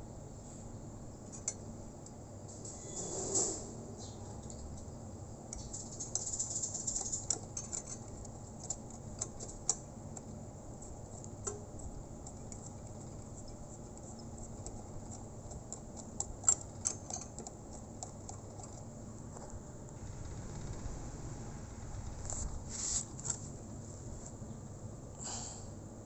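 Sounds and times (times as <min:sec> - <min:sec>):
fingers clicking metal fittings: 0:05.5 - 0:10.4, 0:11.2 - 0:18.9.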